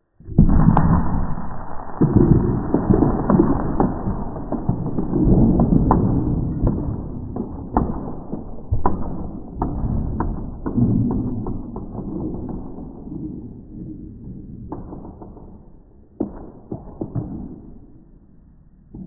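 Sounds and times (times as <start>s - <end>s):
low rumbling: 0.0s - 8.5s.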